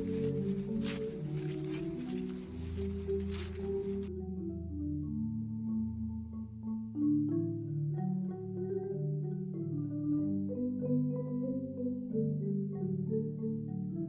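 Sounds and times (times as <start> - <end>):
held low notes: 0.0 - 6.9
background music melody: 0.0 - 14.0.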